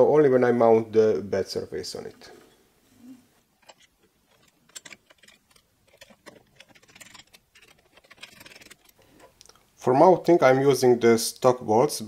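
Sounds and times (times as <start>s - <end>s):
screwdriver turning a bolt: 3.6s - 9.3s
small metal parts clicking: 3.6s - 9.5s.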